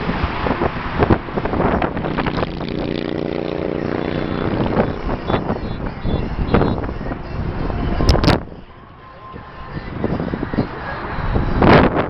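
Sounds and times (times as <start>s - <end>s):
highway traffic: 0.0s - 12.0s
wind gusting on microphone: 0.0s - 12.0s
vehicle horn: 3.9s - 7.0s.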